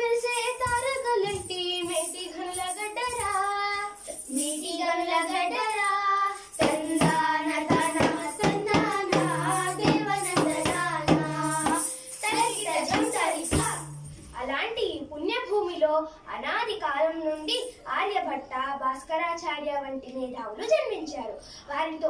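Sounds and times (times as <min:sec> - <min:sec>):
girls singing: 0:00.0 - 0:14.1
hand drums beating: 0:06.5 - 0:14.4.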